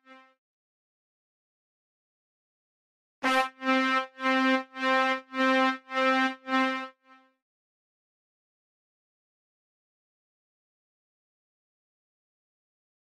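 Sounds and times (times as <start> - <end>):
pulsing synth brass note: 3.2 - 7.3.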